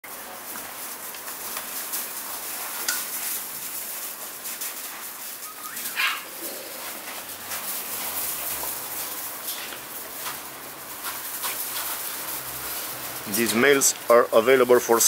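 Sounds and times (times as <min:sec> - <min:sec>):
paws crunching gravel: 0:00.0 - 0:15.0
puppy squeal and sharp bark: 0:05.4 - 0:06.3
puppy yip: 0:05.5 - 0:06.3.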